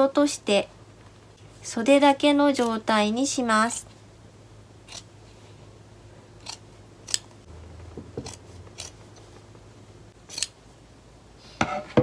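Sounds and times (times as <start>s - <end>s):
scissors snipping fabric: 4.9s - 5.1s, 6.4s - 7.3s, 8.1s - 9.0s, 10.3s - 10.6s.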